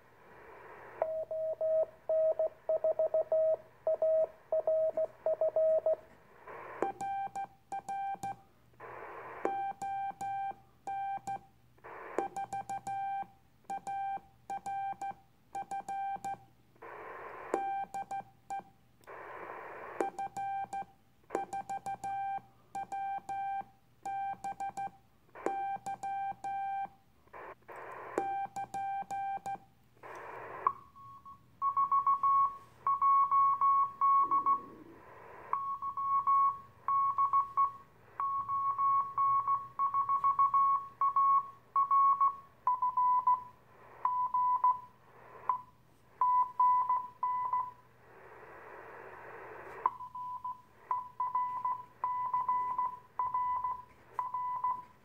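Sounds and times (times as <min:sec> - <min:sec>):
receiver hiss: 0:00.0 - 0:07.0, 0:08.7 - 0:09.7, 0:11.8 - 0:12.4, 0:16.7 - 0:17.8, 0:19.0 - 0:20.4, 0:27.2 - 0:28.5, 0:29.9 - 0:39.9, 0:40.9 - 0:53.2
morse code tone: 0:50.0 - 0:54.9.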